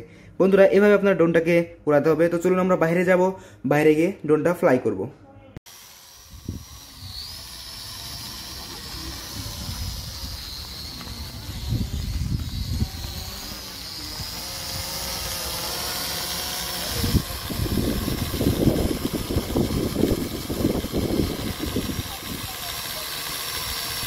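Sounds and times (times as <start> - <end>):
drone propeller whine: 5.7 - 24.0
gusty wind buffeting microphone: 9.2 - 15.0, 16.9 - 22.5.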